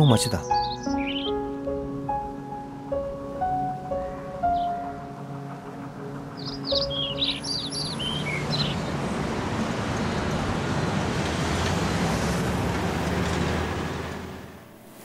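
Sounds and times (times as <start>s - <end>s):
bird chirping: 0.0s - 1.6s, 3.8s - 9.0s
road traffic rumble: 0.2s - 14.8s.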